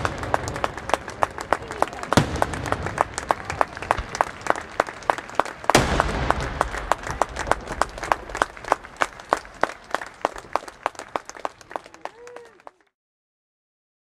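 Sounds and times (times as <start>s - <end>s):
crowd applauding: 0.0s - 13.0s
firework bang: 2.0s - 4.6s, 5.7s - 10.6s.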